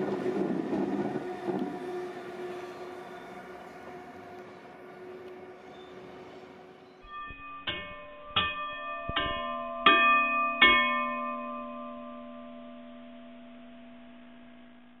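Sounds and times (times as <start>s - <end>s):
bell-like chime: 7.0s - 15.0s.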